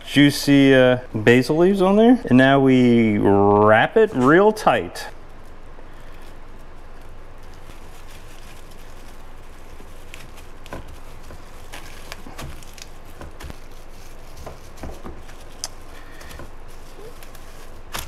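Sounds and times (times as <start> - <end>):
cling wrap crinkling: 4.0 - 18.0.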